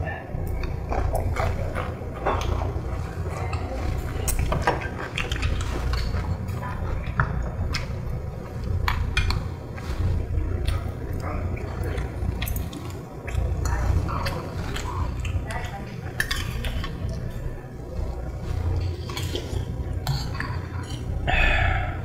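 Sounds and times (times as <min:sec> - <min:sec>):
steady low hum: 0:00.0 - 0:22.0
metal utensils clinking on dishes: 0:11.8 - 0:21.2.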